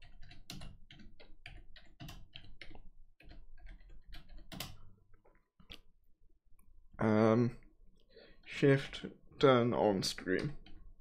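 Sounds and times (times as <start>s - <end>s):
typing on computer keyboard: 0.0s - 4.9s.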